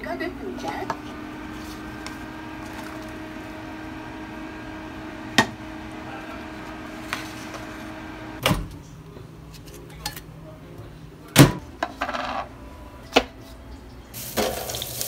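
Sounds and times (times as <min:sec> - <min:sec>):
microwave oven humming: 0:00.0 - 0:09.0
microwave clunk: 0:00.9 - 0:06.8.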